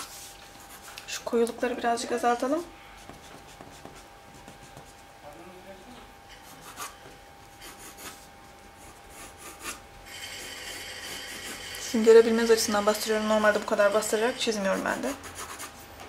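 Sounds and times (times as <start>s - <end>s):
pencil scratching on paper: 3.0s - 5.0s, 6.3s - 7.0s, 7.6s - 11.8s, 14.2s - 15.8s.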